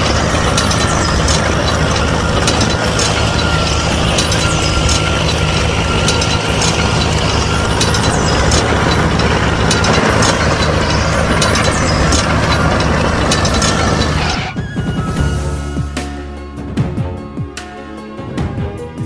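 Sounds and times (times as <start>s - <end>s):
gear rattle: 0.0s - 14.6s
small tractor motor running: 0.0s - 14.7s.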